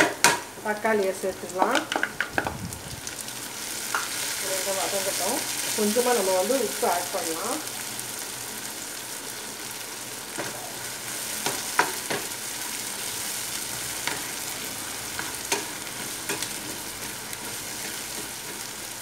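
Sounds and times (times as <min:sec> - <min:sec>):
vegetables sizzling in oil: 0:00.0 - 0:19.0
spatula scraping and tapping pan: 0:15.1 - 0:18.8.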